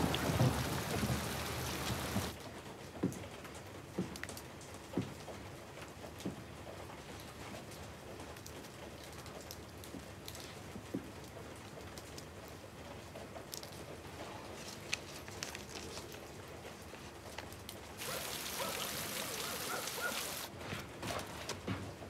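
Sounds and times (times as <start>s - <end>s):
rain patter: 0.0s - 20.6s
paper notes rustling: 14.3s - 21.6s
loud steady hiss: 18.0s - 20.5s.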